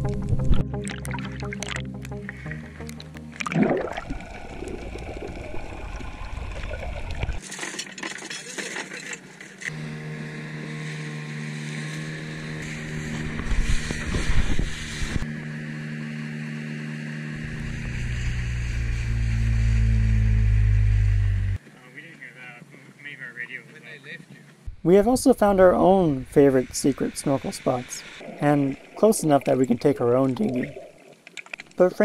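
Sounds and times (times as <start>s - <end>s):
water splashing: 0.7s - 9.4s, 26.4s - 31.9s
outboard motor running: 8.6s - 21.6s.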